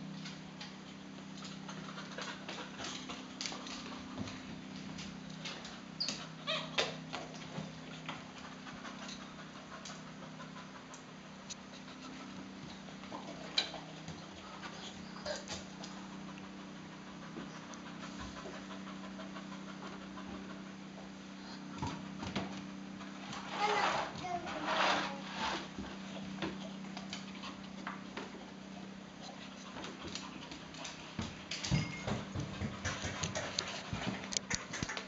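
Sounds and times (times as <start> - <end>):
dog panting: 7.6 - 22.2, 25.1 - 35.0.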